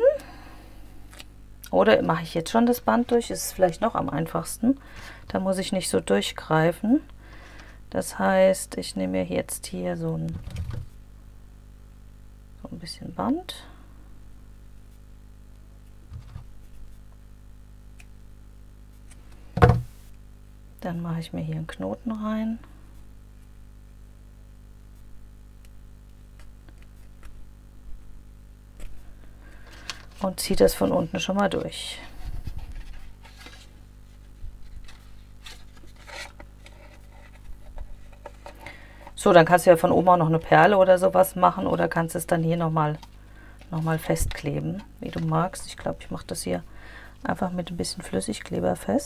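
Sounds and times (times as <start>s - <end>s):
steady low hum: 0.0s - 49.0s
soft knock: 19.6s - 19.9s
card and cord rustling: 28.8s - 40.7s.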